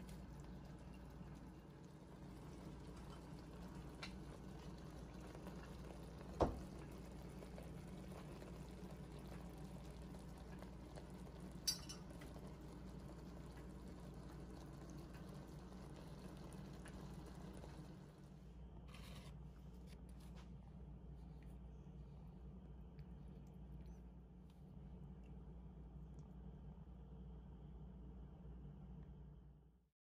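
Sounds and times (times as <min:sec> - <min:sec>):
sauce bubbling in a pan: 0:00.0 - 0:18.4.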